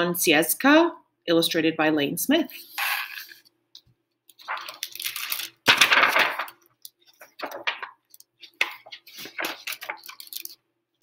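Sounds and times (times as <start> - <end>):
book pages turning: 2.6 - 3.5, 4.3 - 10.6
paper flicks and rustles: 4.3 - 10.6.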